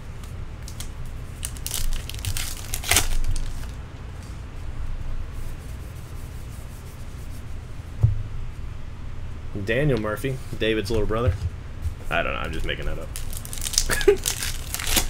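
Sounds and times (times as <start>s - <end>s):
steady low hum: 0.0s - 15.0s
cards rustling and flicking: 0.2s - 4.4s, 12.4s - 15.0s
wrappers crinkling and ripping: 0.6s - 3.8s, 12.4s - 15.0s.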